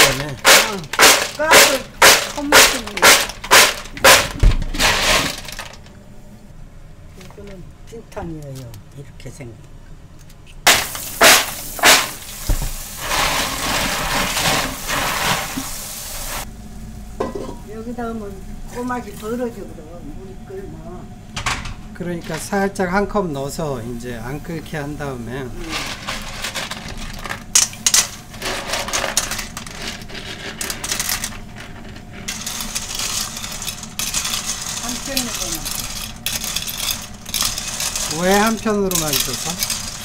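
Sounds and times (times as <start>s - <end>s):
tap water running: 10.7s - 16.5s
thump: 12.5s - 12.8s
hand rubbing shells: 25.6s - 40.0s.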